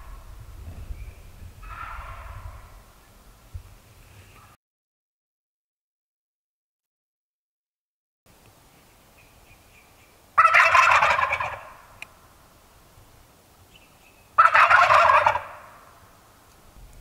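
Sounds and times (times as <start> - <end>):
turkey gobbling: 1.6 - 2.8, 10.4 - 12.0, 14.4 - 16.0.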